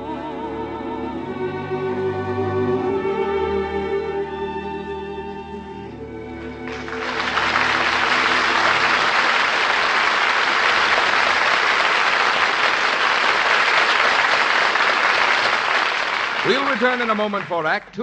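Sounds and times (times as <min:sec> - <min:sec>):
orchestra chord: 0:01.1 - 0:11.8
audience applauding: 0:06.6 - 0:18.0.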